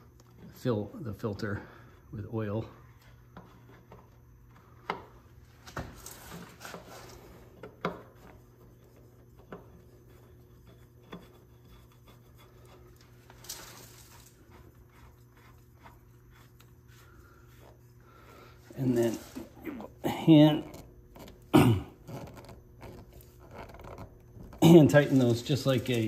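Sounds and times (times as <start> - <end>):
steady low hum: 0.0 - 26.0
small clicks and rubbing: 20.6 - 26.0.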